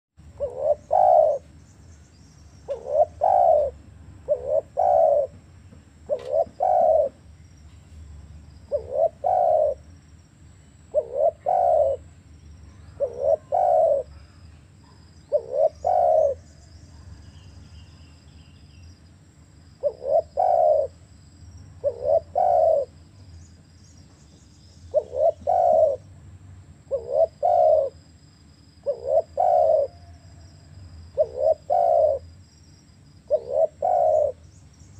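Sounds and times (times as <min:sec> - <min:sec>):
dove cooing: 0:00.2 - 0:01.6, 0:02.6 - 0:07.3, 0:08.7 - 0:10.0, 0:10.9 - 0:12.1, 0:12.7 - 0:17.4, 0:19.8 - 0:21.1, 0:21.8 - 0:23.0, 0:24.9 - 0:26.1, 0:26.9 - 0:28.1, 0:28.8 - 0:32.3, 0:33.2 - 0:34.5.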